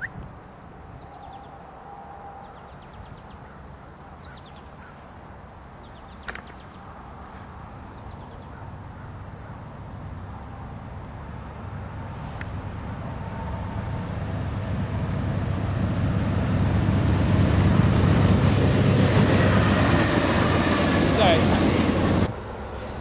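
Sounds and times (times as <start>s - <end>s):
diesel locomotive engine rumble: 9.1s - 23.0s.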